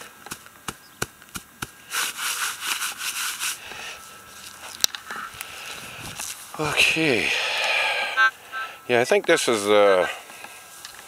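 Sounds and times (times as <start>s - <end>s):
footsteps through grass: 0.0s - 7.2s.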